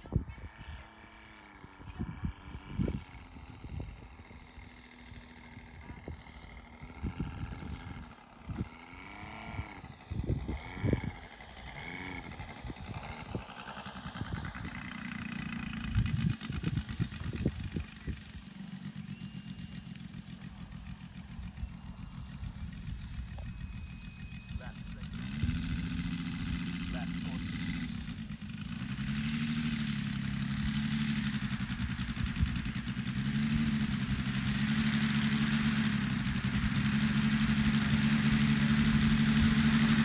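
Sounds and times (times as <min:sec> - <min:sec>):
wind buffeting microphone: 0:00.0 - 0:00.8, 0:09.5 - 0:11.3, 0:12.2 - 0:18.4
model plane motor: 0:00.1 - 0:40.0.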